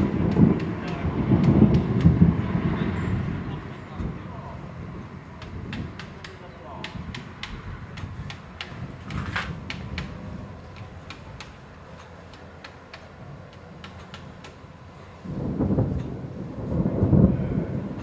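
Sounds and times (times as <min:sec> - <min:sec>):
loud thunder rumble: 0:00.0 - 0:04.2, 0:15.3 - 0:18.0
thunderstorm rumble: 0:00.0 - 0:06.0, 0:15.2 - 0:18.0.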